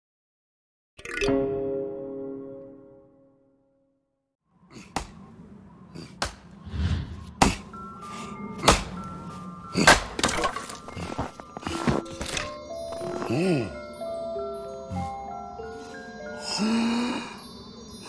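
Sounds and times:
light background music: 5.1s - 18.0s
axe chopping wood: 8.6s - 9.0s, 9.8s - 10.9s.

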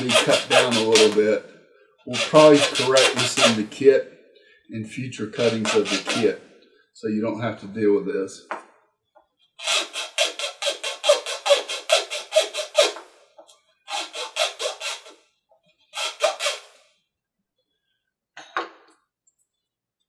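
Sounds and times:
hobby knife sawing wood: 0.0s - 1.4s, 2.1s - 3.9s, 5.3s - 6.4s, 9.6s - 13.1s, 13.9s - 15.2s, 15.9s - 16.8s.

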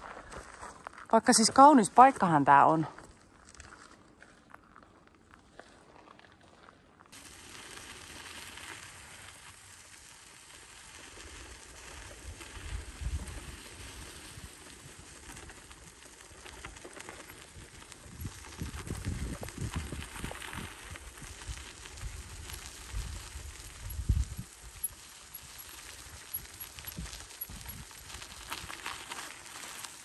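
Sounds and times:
wind rumbling on microphone: 11.8s - 29.0s.

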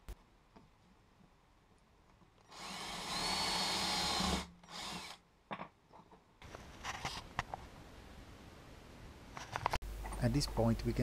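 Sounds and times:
power drill whining: 2.5s - 5.2s.

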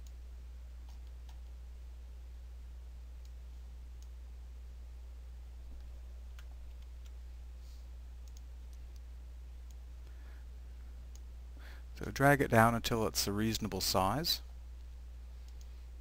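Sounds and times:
low electrical hum: 0.0s - 16.0s
faint computer mouse clicks: 8.2s - 9.1s, 15.4s - 15.7s.

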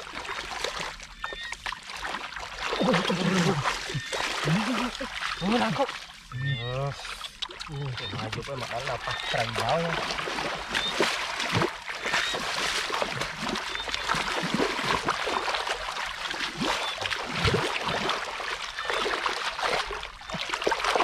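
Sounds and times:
hands splashing in muddy water: 0.0s - 6.1s, 7.3s - 21.0s.

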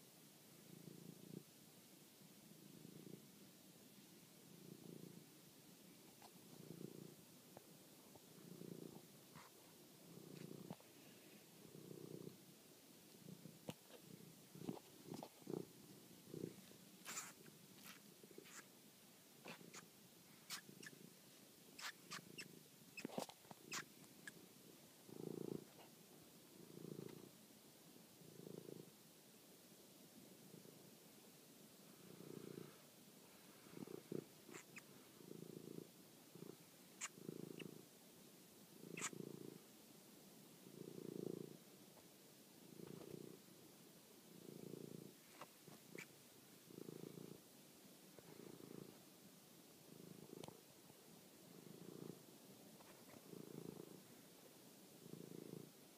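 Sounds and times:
cat purring: 0.0s - 55.9s.

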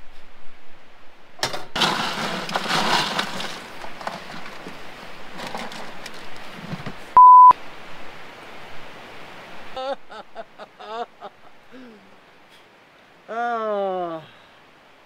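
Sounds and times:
censor beep: 7.2s - 7.6s.

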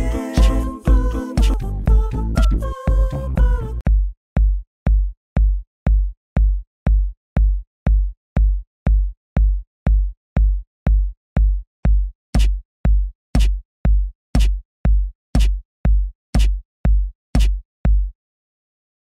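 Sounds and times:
electronic beatbox beat: 0.0s - 3.8s
deep kick drum: 0.0s - 18.2s.

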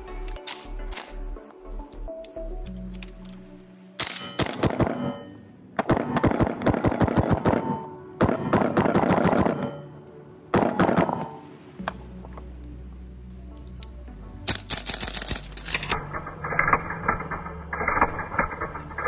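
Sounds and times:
airsoft rifle rapid shots: 4.0s - 5.0s, 5.8s - 7.7s, 14.5s - 15.6s.

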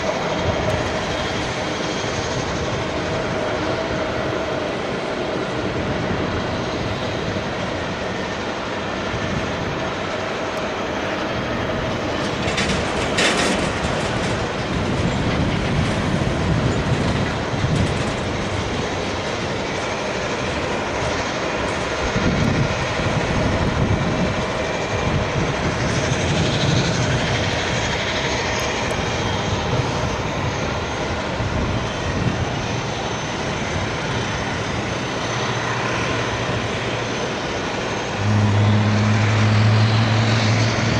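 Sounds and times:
jet engine whine: 0.0s - 40.9s
tug engine rumble: 0.0s - 40.9s
loud burst of noise: 38.0s - 40.9s.

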